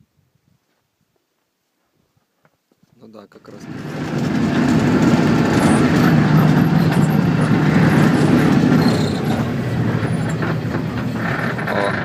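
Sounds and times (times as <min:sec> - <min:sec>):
vehicle engine rumbling: 0:03.4 - 0:12.0.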